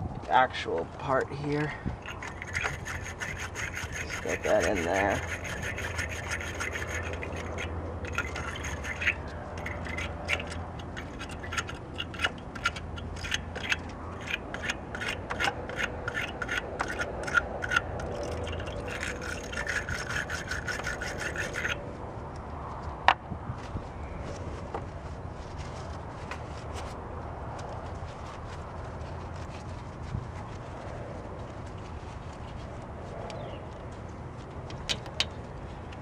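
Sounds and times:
wire brush scraping metal: 1.5s - 21.9s.

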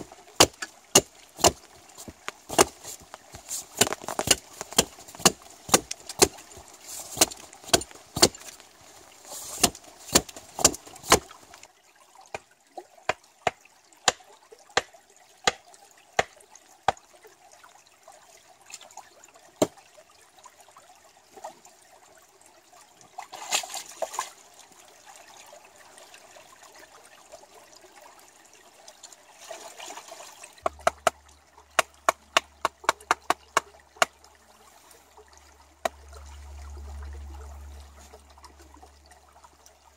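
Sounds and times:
hatchet chopping wood: 0.0s - 2.8s, 3.8s - 6.4s, 7.1s - 8.5s, 9.6s - 11.3s, 13.1s - 14.2s, 30.6s - 31.2s, 31.8s - 34.1s
stream trickling: 0.0s - 39.9s.

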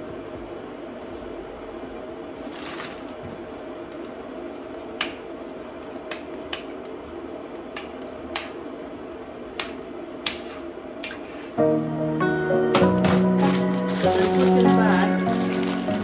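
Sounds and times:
steady low hum: 0.0s - 16.0s
frozen chunks clicking in a pot: 13.0s - 16.0s.

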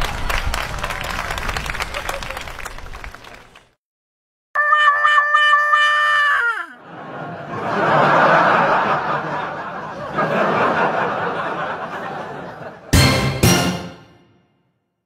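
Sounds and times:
crowd laughing: 6.5s - 13.8s.

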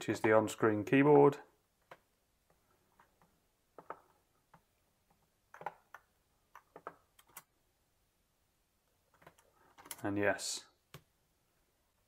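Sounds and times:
computer mouse clicks: 5.5s - 7.5s.

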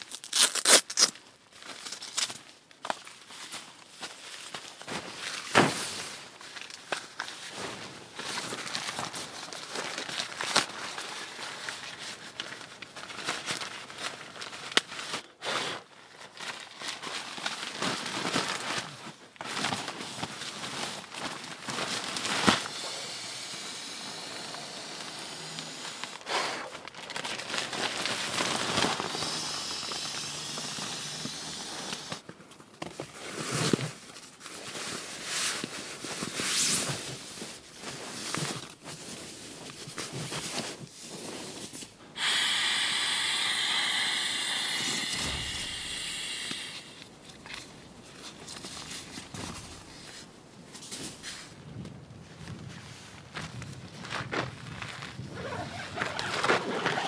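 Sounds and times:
nylon fabric crinkling: 0.0s - 15.2s, 15.9s - 32.3s, 54.7s - 57.0s
rush of air from pump sack: 21.7s - 32.2s, 40.4s - 47.2s.

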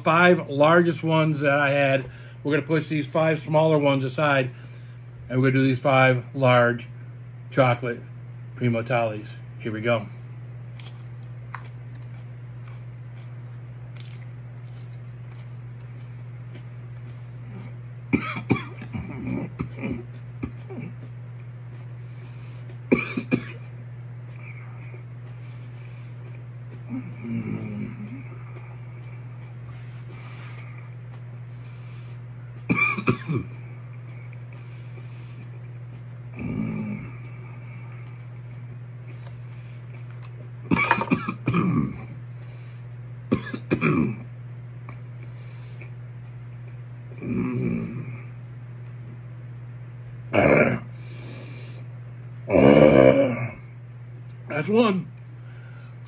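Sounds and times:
steady low hum: 0.0s - 56.0s
mouth sounds: 17.4s - 21.1s, 50.3s - 54.4s
man coughing: 18.1s - 21.0s, 22.9s - 23.7s, 32.7s - 33.6s, 40.7s - 42.1s, 43.3s - 44.2s.

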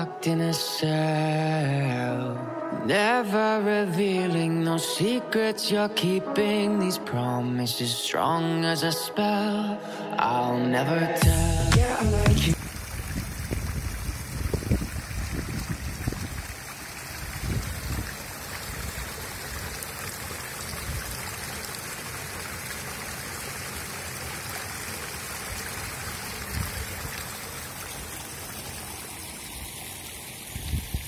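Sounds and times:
shallow water flowing: 12.5s - 31.0s.

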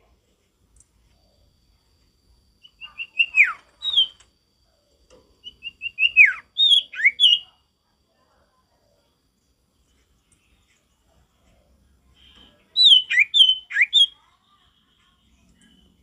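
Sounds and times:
bird singing whistled phrases: 2.6s - 4.2s, 5.4s - 7.6s, 12.2s - 14.2s.

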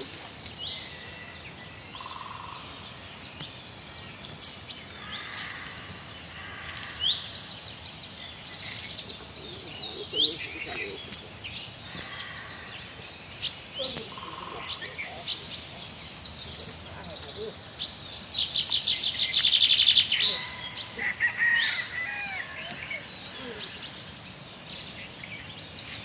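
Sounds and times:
small birds chirping: 0.0s - 26.0s
clicks and taps on wet ground: 3.4s - 5.8s, 13.3s - 14.2s.

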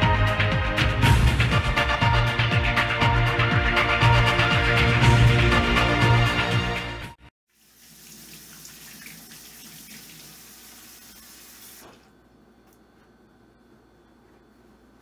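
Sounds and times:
background music: 0.0s - 7.3s
faucet running into metal sink: 7.5s - 11.9s.

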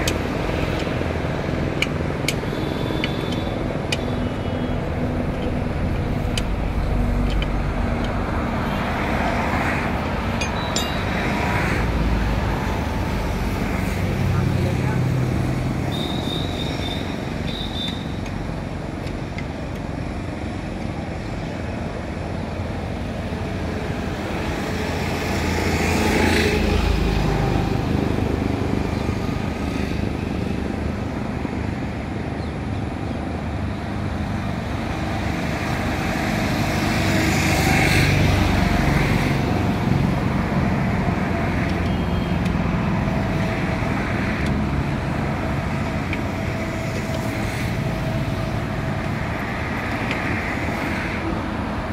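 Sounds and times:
road traffic noise: 0.0s - 51.9s
vehicle passing close: 4.5s - 15.8s.

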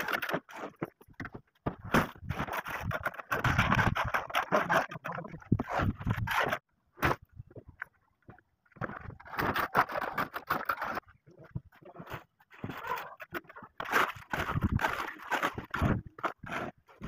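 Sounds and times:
trowel scraping concrete: 1.7s - 7.2s, 9.0s - 11.2s, 11.9s - 17.0s.

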